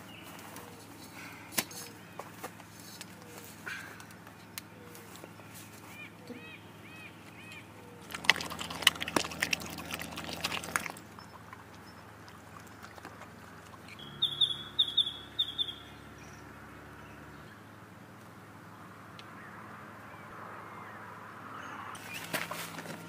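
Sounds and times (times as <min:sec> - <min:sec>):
dog eating from a bowl: 0:08.0 - 0:14.0
bird calling high notes: 0:13.9 - 0:16.0.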